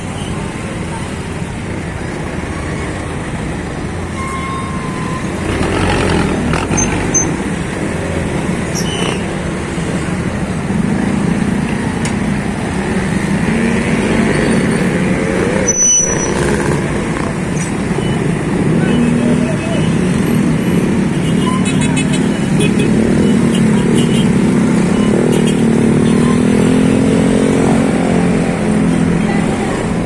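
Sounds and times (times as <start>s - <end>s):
street traffic: 0.0s - 30.0s
people's voices: 27.4s - 30.0s.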